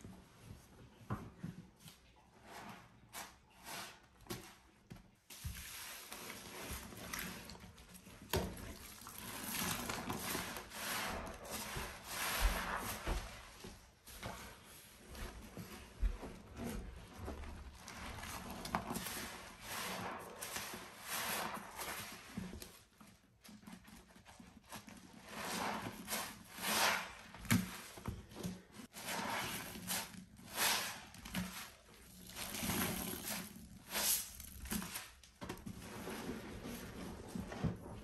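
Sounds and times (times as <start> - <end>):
wet sponge squelching: 5.6 - 13.6, 17.2 - 22.9, 24.2 - 28.0, 28.8 - 35.3.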